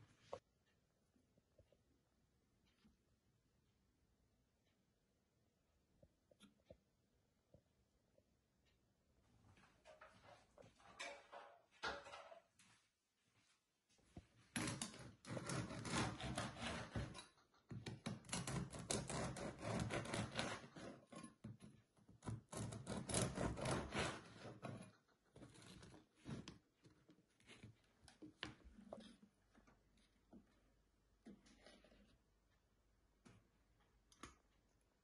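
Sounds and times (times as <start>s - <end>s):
knife sawing through bread crust: 15.2s - 17.2s, 18.3s - 21.2s, 22.2s - 24.8s.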